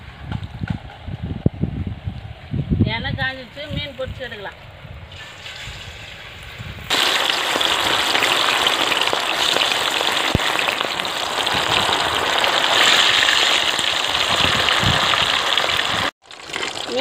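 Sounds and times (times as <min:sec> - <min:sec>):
fish deep-frying in oil: 0:05.1 - 0:17.0.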